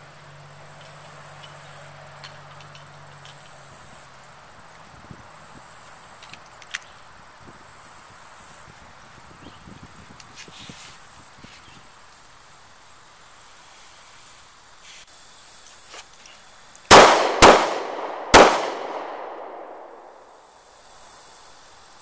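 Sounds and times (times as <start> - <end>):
pistol shots with echo: 16.9 - 20.3.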